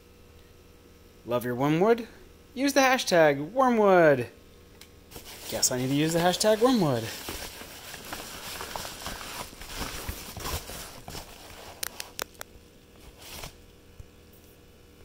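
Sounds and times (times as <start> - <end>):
packing paper rustling: 5.1 - 12.4, 13.0 - 13.6.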